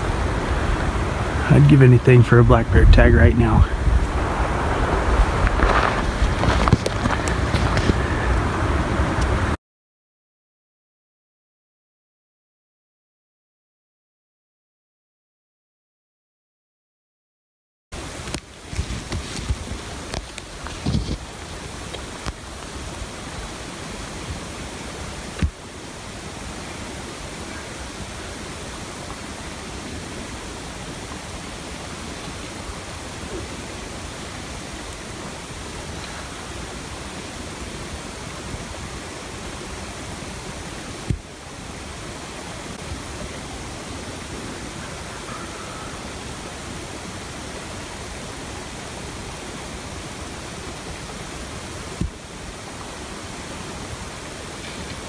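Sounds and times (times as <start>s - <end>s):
steady rushing noise: 0.0s - 9.6s.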